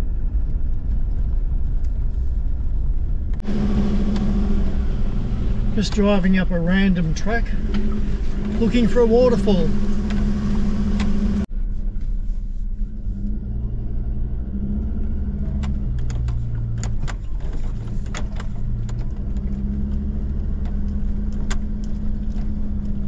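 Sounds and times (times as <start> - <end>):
vehicle engine running: 0.0 - 23.0
clicks and rattles over bumps: 15.4 - 23.0.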